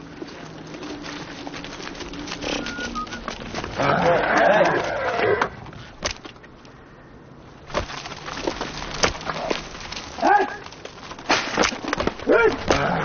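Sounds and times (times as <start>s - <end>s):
horse call: 2.4s - 5.6s
sharp knocks and cracks: 6.0s - 6.7s, 7.6s - 13.0s.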